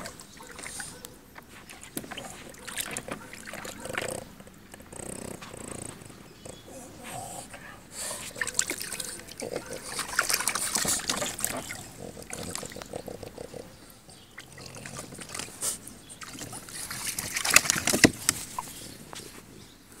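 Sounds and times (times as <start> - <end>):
dogs splashing in water: 0.0 - 19.1
sharp splashes: 8.2 - 12.7, 16.2 - 18.4.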